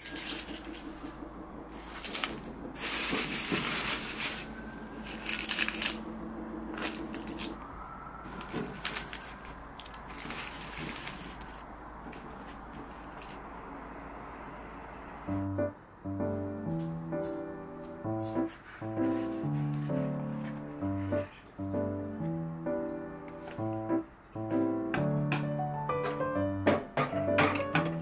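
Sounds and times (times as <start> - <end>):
rustling and crackling handling: 0.0 - 6.1, 6.7 - 13.4.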